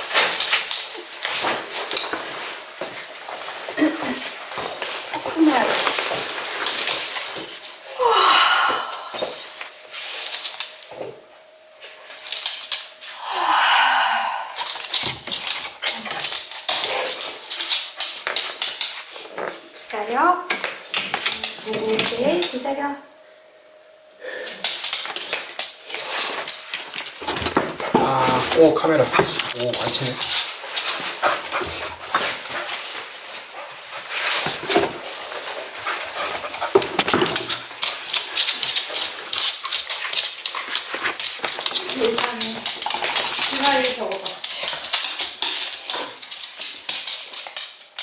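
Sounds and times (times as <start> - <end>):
dog whining: 9.0 - 9.6, 14.5 - 16.3
dog claws clicking on wooden floor: 14.6 - 19.5, 20.5 - 22.6, 24.6 - 33.7, 34.4 - 48.0.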